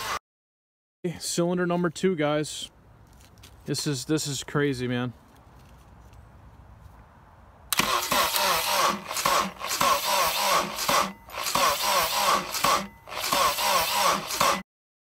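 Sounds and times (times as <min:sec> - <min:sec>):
engine cranking by starter motor: 0:07.7 - 0:14.6.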